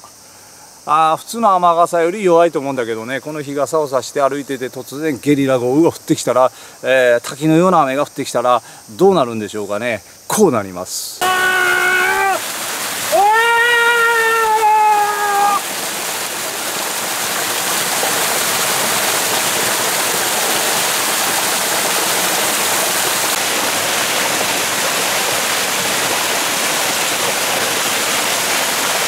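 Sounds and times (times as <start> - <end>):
man's long held cry: 11.2 - 15.7
waterfall splashing into stream: 11.2 - 29.0.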